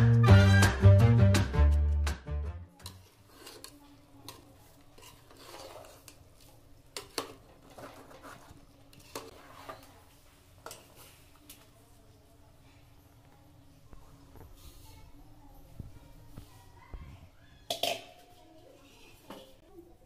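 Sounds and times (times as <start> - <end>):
spoon scraping pot: 2.8 - 10.0.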